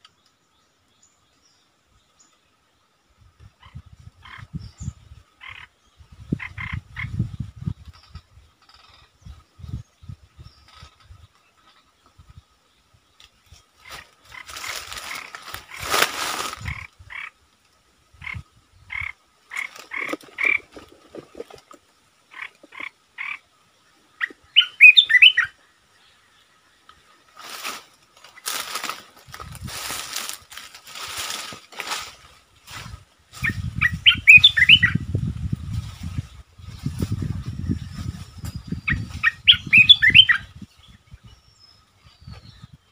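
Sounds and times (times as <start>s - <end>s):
bird calling: 18.2s - 23.5s, 24.1s - 25.6s, 29.7s - 35.0s, 38.5s - 40.6s.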